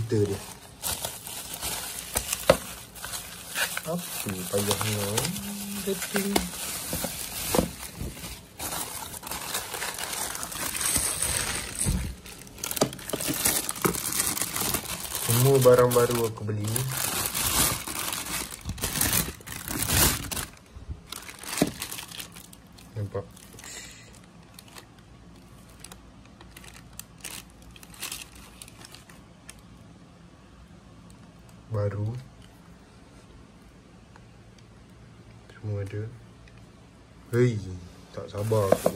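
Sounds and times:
plastic packaging crinkling: 0:00.0 - 0:29.7, 0:38.4 - 0:38.9.

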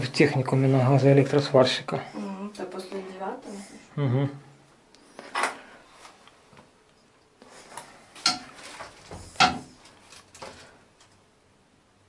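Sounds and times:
hard objects knocking and clattering: 0:08.2 - 0:09.8.

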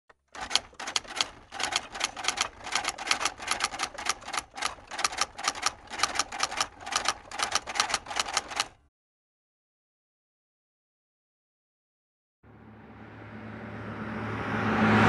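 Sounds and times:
typewriter keys clacking: 0:00.2 - 0:08.8.

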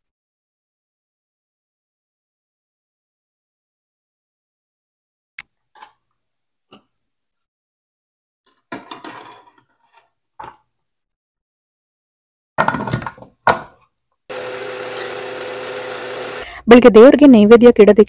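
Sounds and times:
utensils knocking and clanking: 0:08.5 - 0:10.6
appliance humming: 0:14.3 - 0:16.5.

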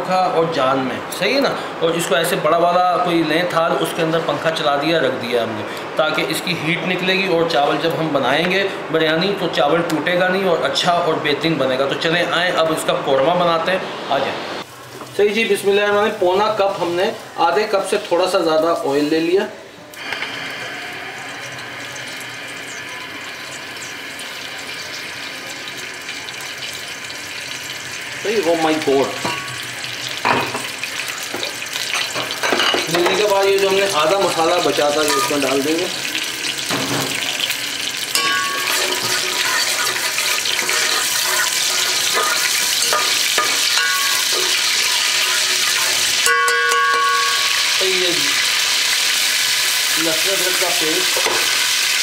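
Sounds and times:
spices sizzling in oil: 0:14.4 - 0:19.4, 0:20.0 - 0:52.0
gas stove burner hissing: 0:19.9 - 0:52.0
spoon clinking against pot: 0:38.1 - 0:47.8.

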